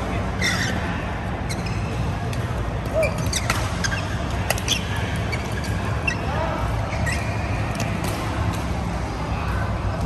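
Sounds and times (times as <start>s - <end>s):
low hall hum: 0.0s - 10.0s
trainers squeaking on court: 0.3s - 2.1s, 2.9s - 7.7s.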